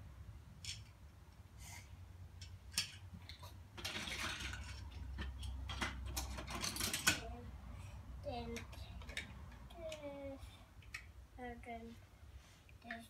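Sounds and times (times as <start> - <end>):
plastic toy blocks clicking and clattering: 0.6 - 1.0, 2.4 - 7.4, 8.4 - 10.1.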